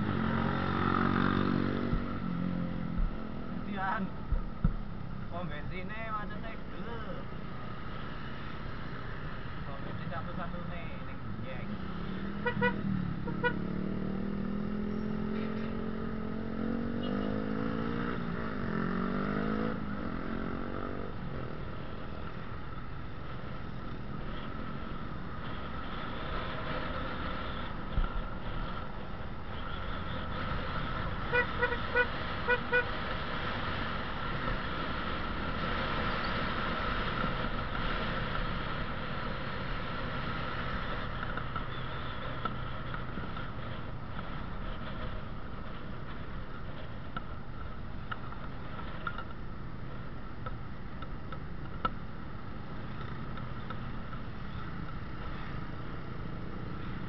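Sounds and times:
motorcycle engine accelerating: 0.0s - 3.5s, 11.8s - 22.1s
road and wind noise: 0.0s - 57.0s
motorcycle horn beeps: 12.3s - 13.7s, 31.2s - 32.8s.

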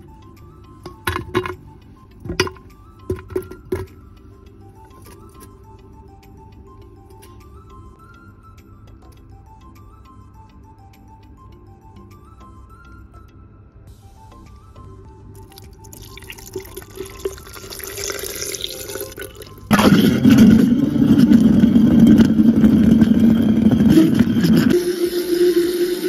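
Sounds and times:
liquid pouring into blender jar: 15.4s - 24.8s
blender motor running: 19.7s - 26.0s.

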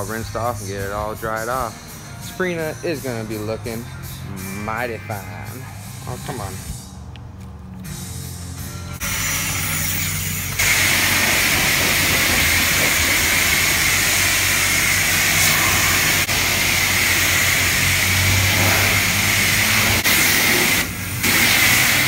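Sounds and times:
pressure washer water jet hissing: 9.0s - 22.0s.

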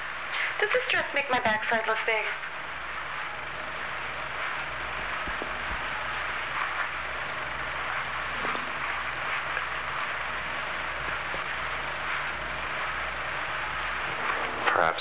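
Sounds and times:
low hum: 0.0s - 15.0s
steady hiss: 0.0s - 15.0s.

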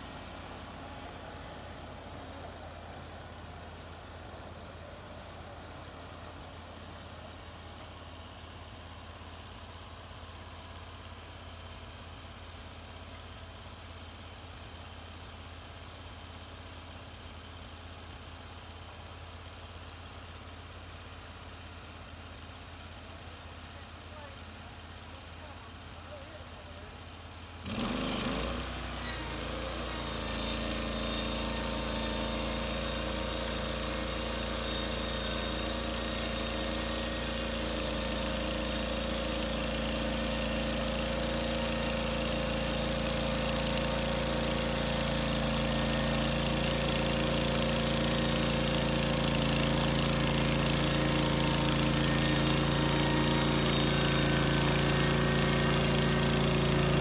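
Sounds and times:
gas engine running: 25.0s - 57.0s
bandsaw mill cutting log: 27.6s - 57.0s.

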